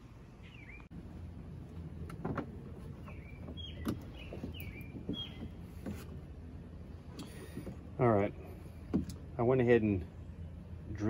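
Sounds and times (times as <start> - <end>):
small bird chirping: 0.4 - 0.9, 3.0 - 5.8.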